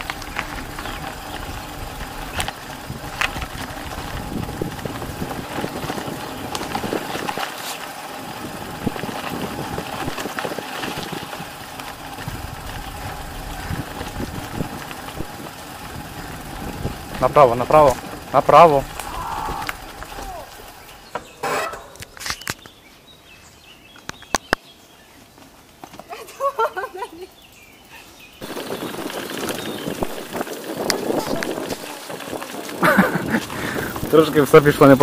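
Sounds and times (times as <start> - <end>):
vehicle engine running: 0.0 - 21.4, 27.3 - 35.0
road and wind noise: 0.0 - 26.2, 27.0 - 35.0.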